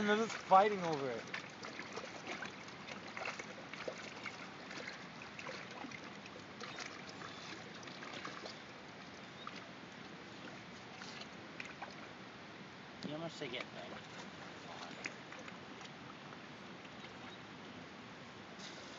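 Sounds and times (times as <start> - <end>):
fish splashing at water surface: 0.0 - 8.7
lapping water: 0.0 - 12.2, 13.3 - 17.5.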